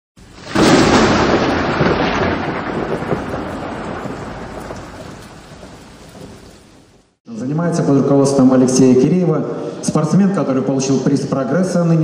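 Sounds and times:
thunderclap with long rumble: 0:00.2 - 0:07.2.

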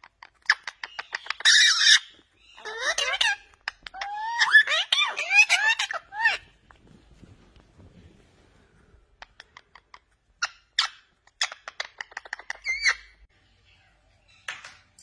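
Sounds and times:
parakeets chirping and squawking: 0:00.0 - 0:06.7, 0:09.2 - 0:13.2.

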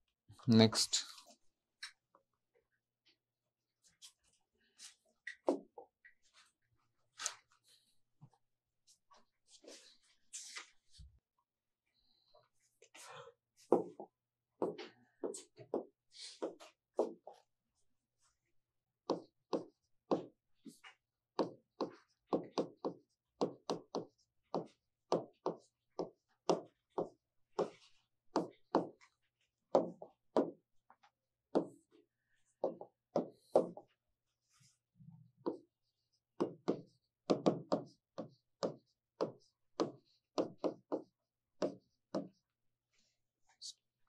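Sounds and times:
pen tapping on writing board: 0:19.1 - 0:20.3, 0:21.4 - 0:27.8, 0:28.4 - 0:29.0, 0:29.7 - 0:30.6, 0:31.5 - 0:31.8, 0:32.6 - 0:33.8, 0:36.4 - 0:42.4.

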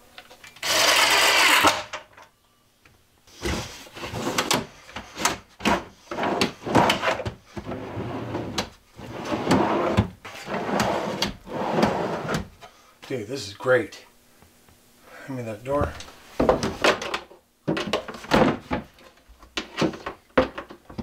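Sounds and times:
cordless drill driving screw: 0:00.6 - 0:01.8
shelf sliding on drawer slides: 0:03.4 - 0:12.5.

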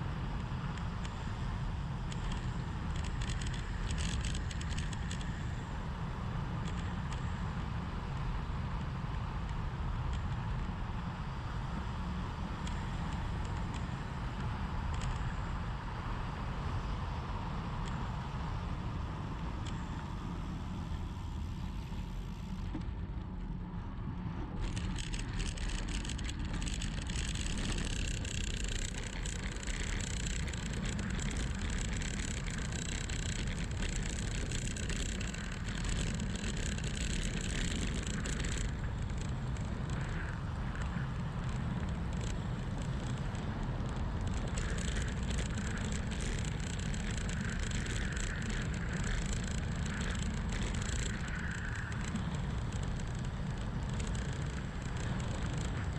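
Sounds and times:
tyre noise on asphalt: 0:19.5 - 0:55.9.

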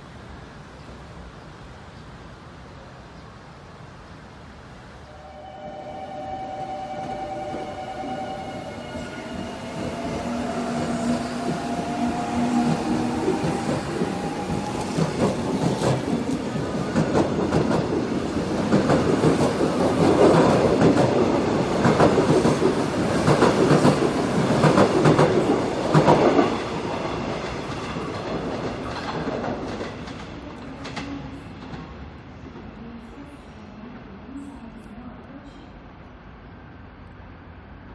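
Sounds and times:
train wheels clacking on rail joints: 0:09.7 - 0:31.9.

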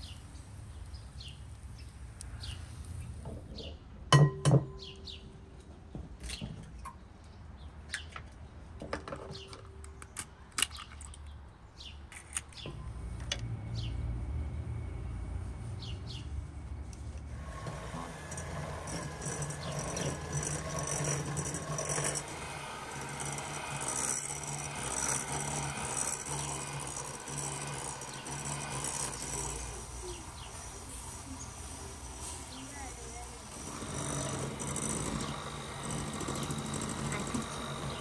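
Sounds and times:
birds chirping: 0:00.0 - 0:03.9, 0:04.7 - 0:05.6, 0:06.2 - 0:12.9, 0:13.6 - 0:14.9, 0:15.8 - 0:16.4, 0:28.0 - 0:33.3
electric hand mixer humming: 0:17.4 - 0:38.0
beaters rattling against bowl: 0:18.2 - 0:30.9.

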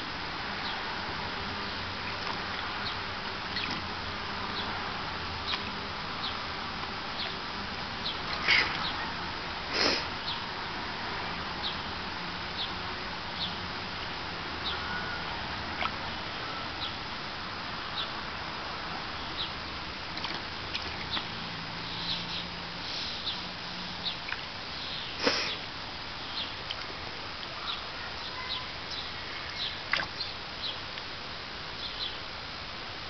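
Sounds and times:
shallow water splashing: 0:03.4 - 0:04.2, 0:19.6 - 0:21.8, 0:29.4 - 0:30.2
steady hiss: 0:21.3 - 0:33.0.

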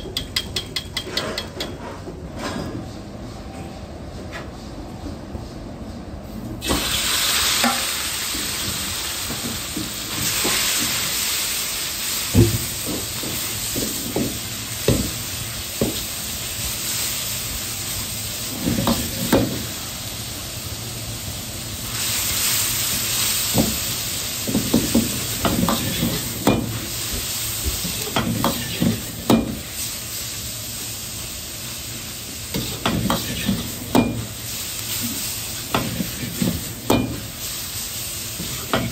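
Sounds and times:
meat sizzling in oil: 0:06.6 - 0:38.9.

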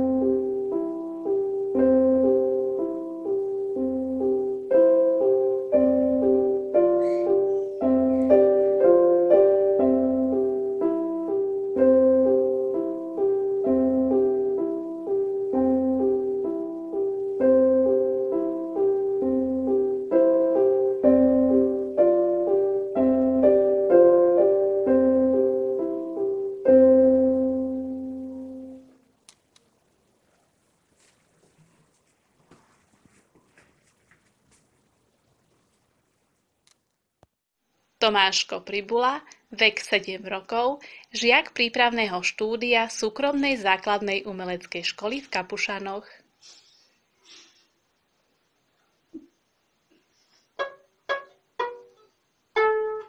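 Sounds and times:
piano piece on electronic keyboard: 0:00.0 - 0:29.0.

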